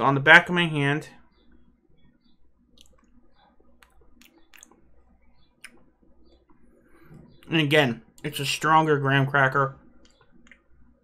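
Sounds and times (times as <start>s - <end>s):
mouth clicks and lip smacks: 2.7s - 7.5s, 10.0s - 10.8s.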